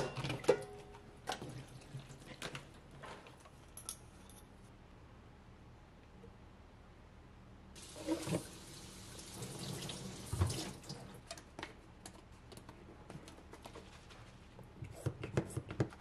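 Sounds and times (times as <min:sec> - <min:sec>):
faucet running water into bottle: 0:07.8 - 0:11.0.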